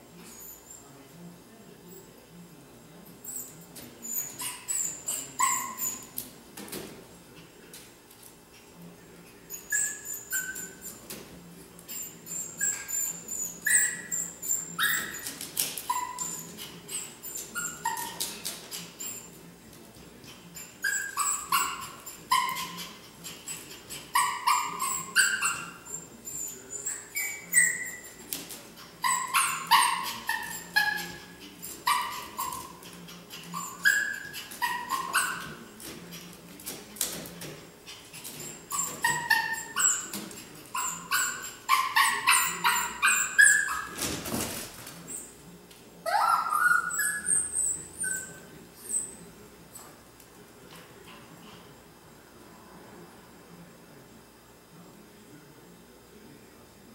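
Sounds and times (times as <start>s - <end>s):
small dog whining and yipping: 11.9s - 15.3s, 40.8s - 44.0s, 46.1s - 49.1s.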